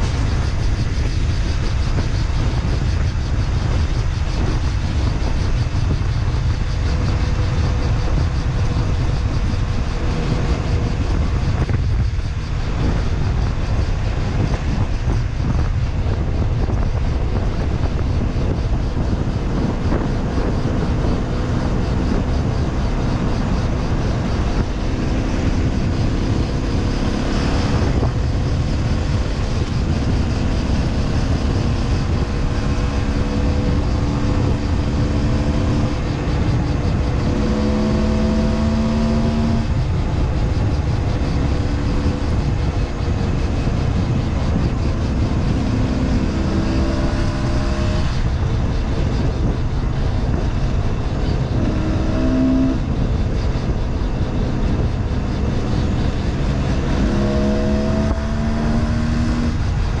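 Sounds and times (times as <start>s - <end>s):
wind noise on microphone: 0.0s - 60.0s.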